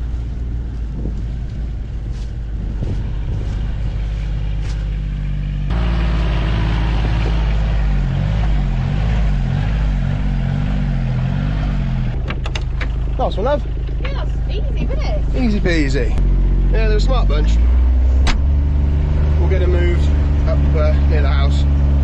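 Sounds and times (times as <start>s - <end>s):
wind on microphone: 0.0s - 4.8s
diesel engine running: 0.0s - 22.0s.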